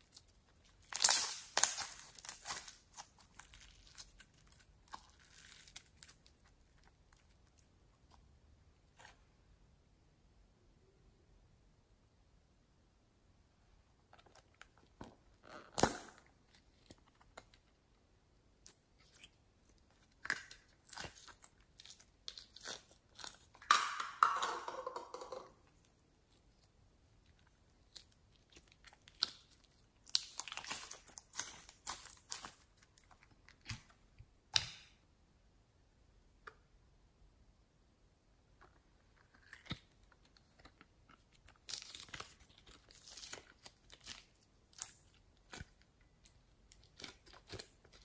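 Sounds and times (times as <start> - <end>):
slime crackling and squelching: 0.0 - 9.2, 18.5 - 24.2, 25.8 - 34.9, 38.8 - 48.0.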